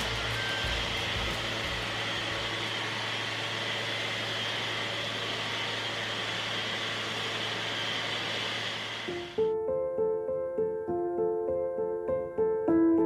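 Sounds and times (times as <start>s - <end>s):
low machine hum: 0.0s - 9.4s
machine hiss: 0.0s - 9.4s.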